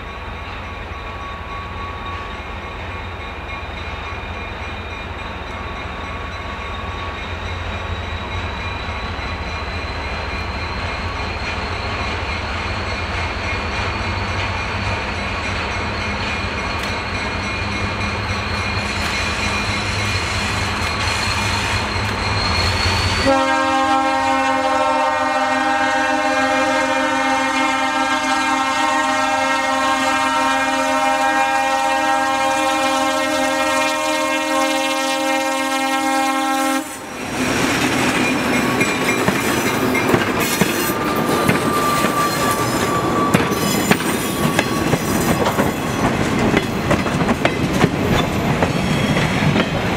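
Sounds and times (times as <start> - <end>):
locomotive air horn: 23.1 - 37.2.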